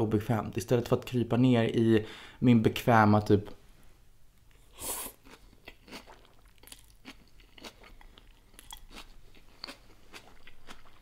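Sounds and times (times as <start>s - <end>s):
person chewing food: 4.5s - 11.0s.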